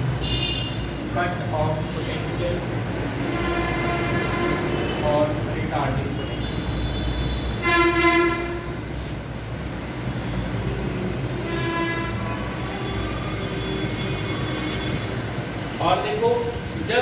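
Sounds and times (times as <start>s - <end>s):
train horn blasts: 3.3s - 5.0s, 7.6s - 8.8s, 11.4s - 15.1s.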